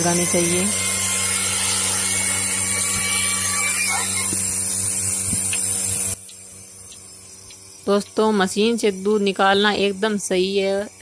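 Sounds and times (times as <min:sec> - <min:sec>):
milking machine motor hum: 0:00.0 - 0:11.0
vacuum pump hiss: 0:00.0 - 0:11.0.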